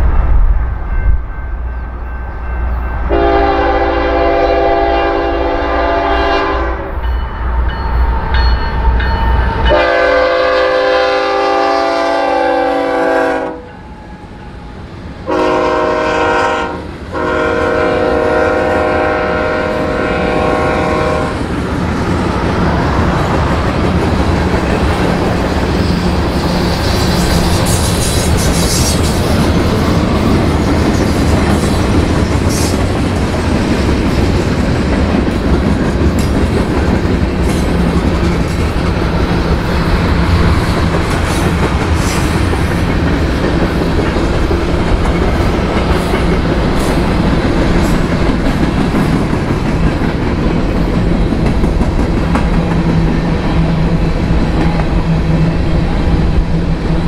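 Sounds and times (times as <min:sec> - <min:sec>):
train cars clickety-clack: 0:00.0 - 0:57.0
locomotive air horn blasts: 0:03.1 - 0:07.0, 0:09.7 - 0:13.8, 0:15.3 - 0:21.4
deep locomotive rumble: 0:14.4 - 0:57.0.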